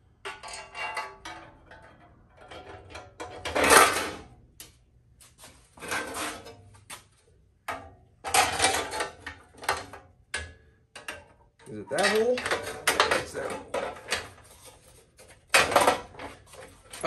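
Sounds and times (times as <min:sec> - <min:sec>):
metal scraping and clanking: 0:00.3 - 0:04.3, 0:05.8 - 0:06.7, 0:08.2 - 0:09.9, 0:11.7 - 0:17.0.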